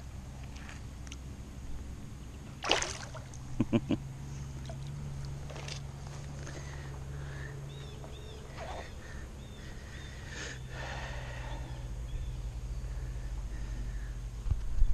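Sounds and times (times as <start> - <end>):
steady low hum: 0.0 - 14.9
birds chirping: 3.6 - 14.9.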